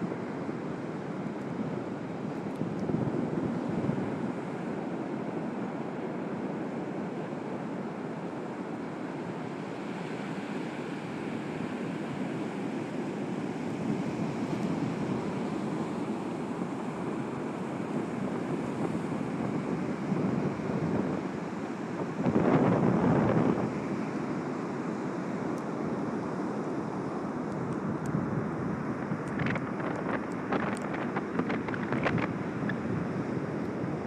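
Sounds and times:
wind on microphone: 0:01.8 - 0:05.2, 0:17.5 - 0:24.1, 0:27.6 - 0:34.0.

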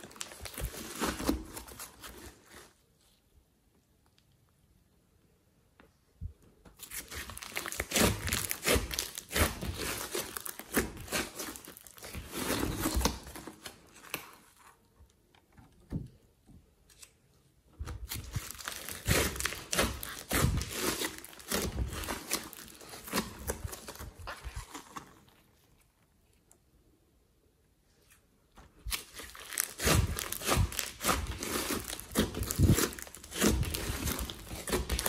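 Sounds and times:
slime crackling and squelching: 0:00.0 - 0:02.8, 0:06.8 - 0:14.6, 0:18.0 - 0:26.0, 0:28.7 - 0:35.0.

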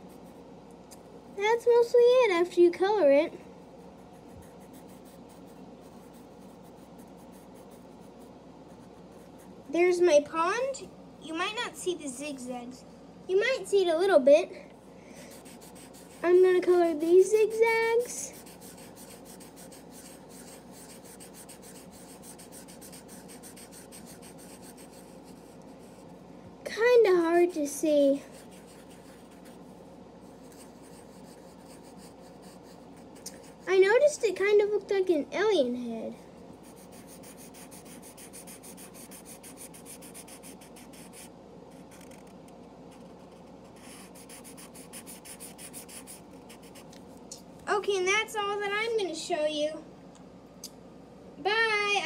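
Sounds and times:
marker scribbling on paper: 0:03.9 - 0:09.5, 0:15.3 - 0:26.1, 0:28.3 - 0:33.7, 0:36.6 - 0:42.3, 0:43.0 - 0:46.9.

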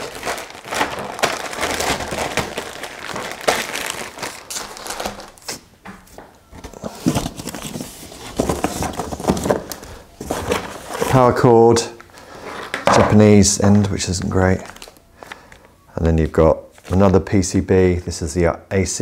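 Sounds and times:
rummaging in cardboard box: 0:00.0 - 0:05.6, 0:06.4 - 0:11.4
plastic bag crinkling: 0:00.0 - 0:05.7, 0:06.6 - 0:13.0, 0:13.7 - 0:15.7.

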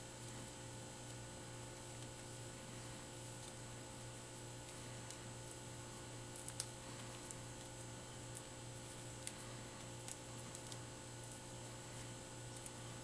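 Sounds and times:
cable crackling and clicking: 0:06.3 - 0:11.4.

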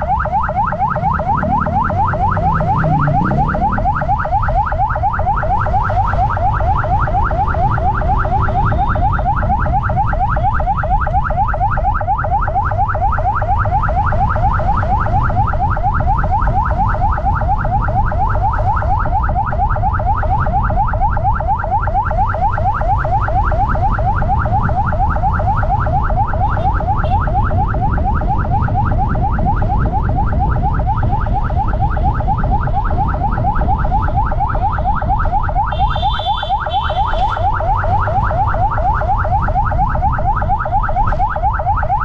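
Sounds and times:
electronic yelp siren: 0:00.0 - 0:42.0
wind: 0:00.0 - 0:42.0
motorcycle ride rumble: 0:23.0 - 0:41.9.

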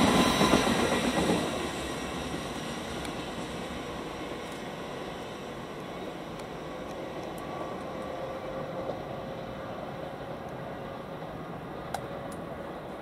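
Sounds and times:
electric train rumble: 0:00.0 - 0:13.0.

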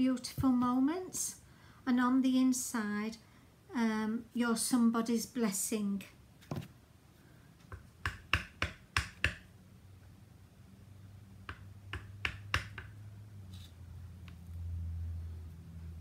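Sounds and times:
faint low hum: 0:09.4 - 0:16.0
stamp block tapping on mat: 0:11.5 - 0:12.9.

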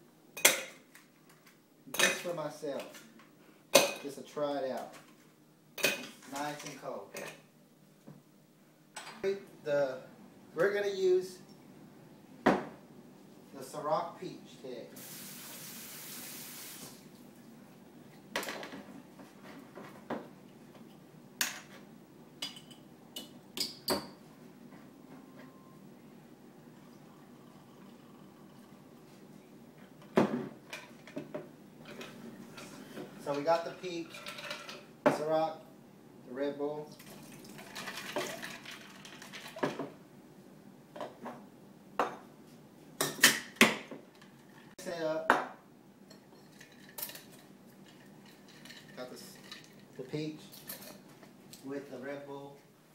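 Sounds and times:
kitchen tap running: 0:15.0 - 0:17.1.

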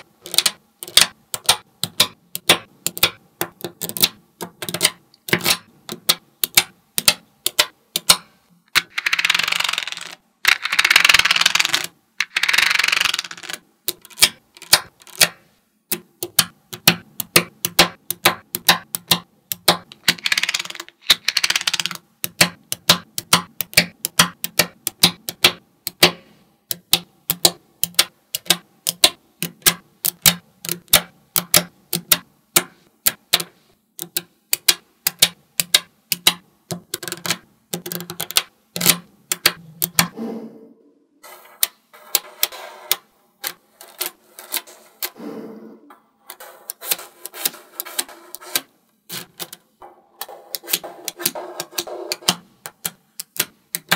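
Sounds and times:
magnetic balls clicking: 0:00.0 - 0:40.2, 0:46.3 - 0:53.9
balls rattling and scraping: 0:08.7 - 0:15.2, 0:19.8 - 0:22.4, 0:41.2 - 0:45.2, 0:45.9 - 0:53.9.

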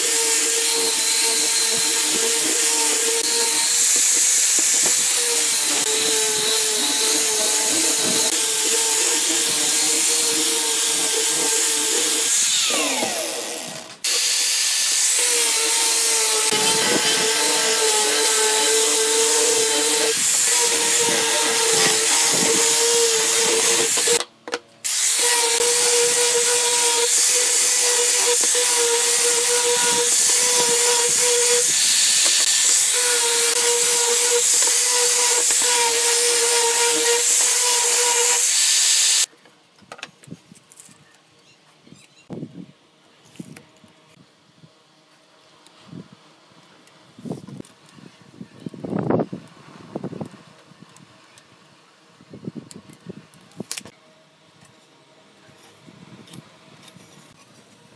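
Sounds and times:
angle grinder sanding wood: 0:00.0 - 0:24.2, 0:24.9 - 0:39.3.

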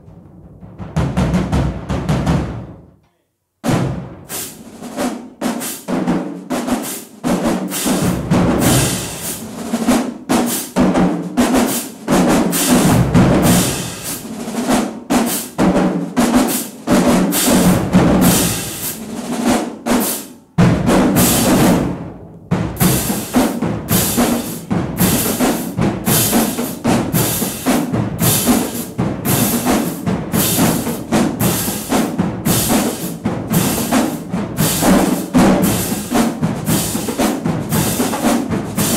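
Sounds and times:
bass drums: 0:00.0 - 0:02.9
snare drums: 0:00.0 - 0:02.9, 0:03.6 - 0:38.9
tenor drums: 0:00.0 - 0:38.9
cymbals: 0:03.6 - 0:38.9.

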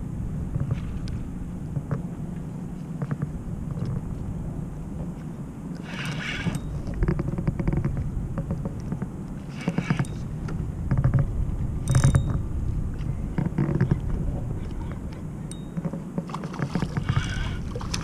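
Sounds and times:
fishing reel gears whirring: 0:05.8 - 0:07.9, 0:09.4 - 0:10.3, 0:11.8 - 0:12.4, 0:15.5 - 0:18.0.

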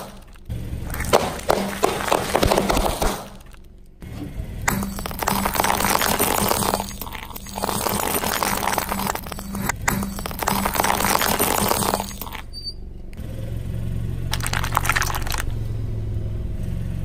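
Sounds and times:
tyre crushing crunchy objects: 0:00.0 - 0:03.7, 0:04.7 - 0:12.4, 0:14.3 - 0:15.6.

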